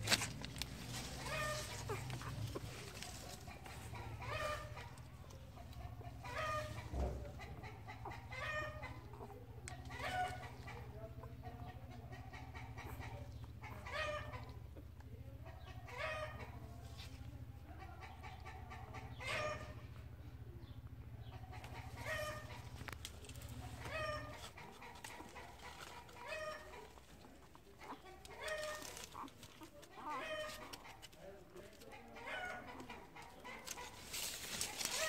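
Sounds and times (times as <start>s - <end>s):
puppies whimpering and squeaking: 0.0s - 11.3s, 21.3s - 31.2s.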